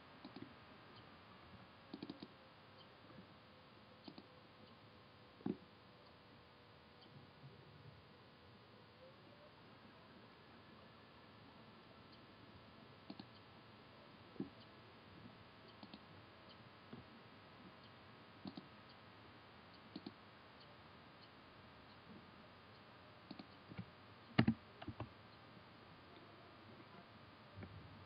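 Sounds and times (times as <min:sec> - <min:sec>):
computer mouse clicks: 0:00.2 - 0:00.5, 0:01.9 - 0:02.9, 0:04.0 - 0:04.8, 0:13.0 - 0:13.4, 0:15.7 - 0:16.1, 0:17.8 - 0:18.7, 0:19.8 - 0:20.2, 0:23.3 - 0:25.1
keyboard keystrokes: 0:24.4 - 0:25.1.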